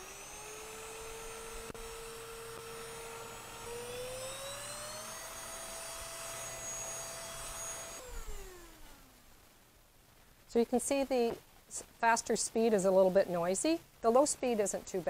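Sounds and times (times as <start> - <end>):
vacuum cleaner motor whine: 0.0 - 9.1.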